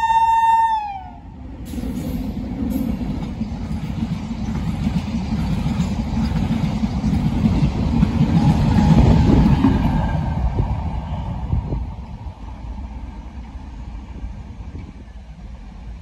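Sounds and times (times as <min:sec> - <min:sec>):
freight train wheels clattering: 0:01.6 - 0:11.0.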